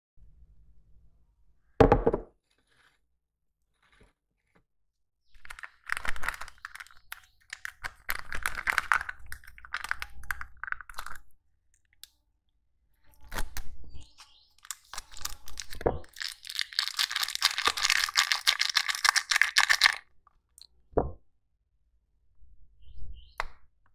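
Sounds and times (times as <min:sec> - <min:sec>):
plastic sachet crinkling: 0:05.4 - 0:11.2, 0:14.6 - 0:20.0.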